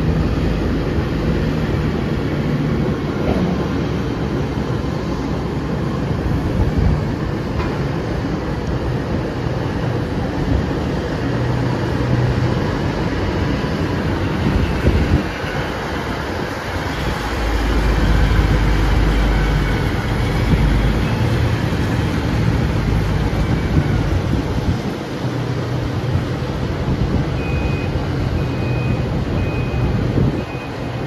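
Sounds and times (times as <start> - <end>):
truck reversing alarm beeps: 13.6 - 24.3, 27.2 - 31.0.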